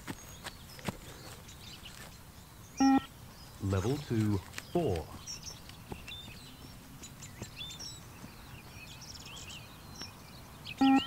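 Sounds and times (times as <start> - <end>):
outdoor background noise: 0.0 - 11.0
small birds chirping: 0.0 - 11.0
short loud electronic beep: 2.8 - 3.1, 10.8 - 11.0.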